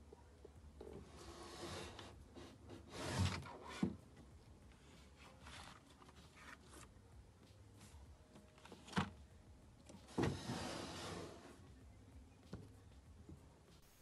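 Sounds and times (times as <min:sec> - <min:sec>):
wooden drawer sliding shut: 0:10.1 - 0:11.5.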